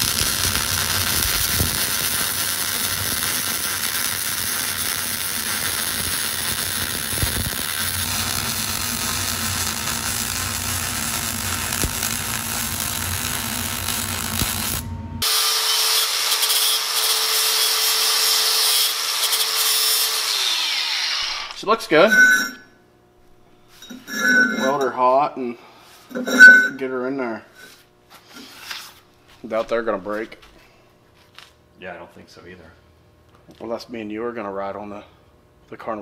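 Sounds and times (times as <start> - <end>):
welding arc crackling: 0.0 - 15.4
angle grinder whining: 0.0 - 22.6.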